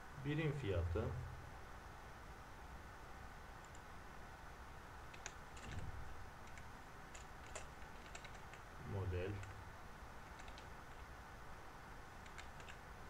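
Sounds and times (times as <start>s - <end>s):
faint steady hiss: 0.0s - 13.0s
computer keyboard keystrokes: 5.1s - 5.8s, 6.4s - 8.6s, 9.3s - 9.6s, 10.3s - 11.0s, 12.2s - 12.8s.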